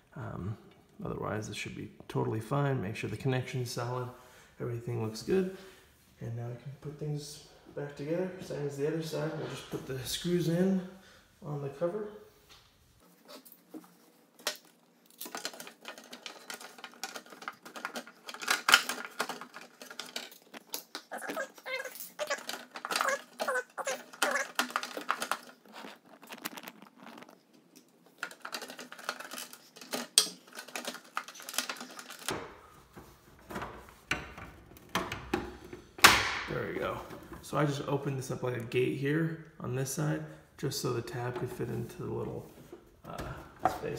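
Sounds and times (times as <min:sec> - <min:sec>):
plastic panels clicking and rattling: 0:14.4 - 0:26.8, 0:28.1 - 0:37.4.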